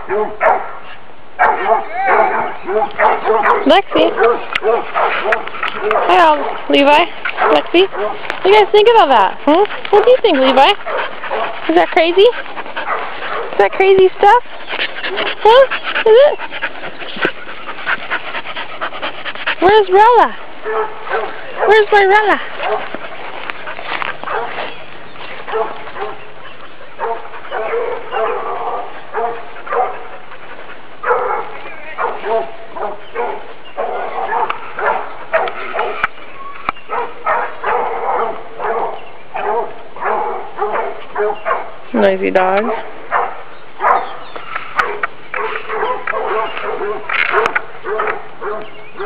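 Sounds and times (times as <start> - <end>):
dog barking: 0.0 - 0.8, 1.4 - 6.6, 7.4 - 8.2, 10.2 - 11.8, 12.8 - 13.6, 19.7 - 22.9, 24.2 - 24.6, 25.5 - 26.2, 27.0 - 30.0, 31.0 - 36.1, 36.9 - 41.8, 42.6 - 44.2, 44.8 - 49.0
dog barking in high yaps: 0.1 - 0.7, 1.4 - 6.5, 36.9 - 41.7, 43.1 - 44.2.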